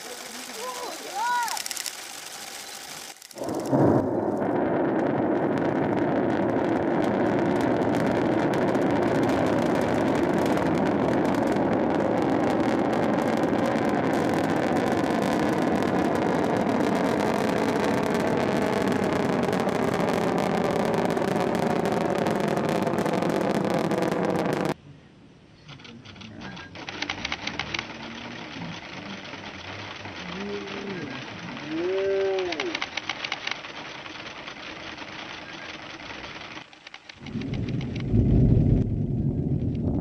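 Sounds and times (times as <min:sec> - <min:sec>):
rocket engine rumble: 0:00.0 - 0:24.8, 0:37.2 - 0:40.0.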